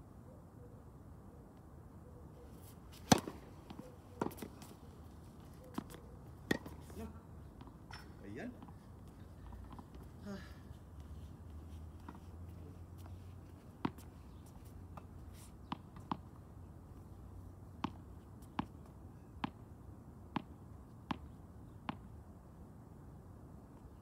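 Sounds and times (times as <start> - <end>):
tennis balls bouncing: 3.0 - 4.8, 5.7 - 10.2, 13.0 - 16.5, 17.7 - 19.6, 20.3 - 22.1
tennis balls struck by rackets: 3.0 - 4.8, 5.7 - 10.2, 13.8 - 16.4, 17.7 - 19.6, 20.4 - 22.1.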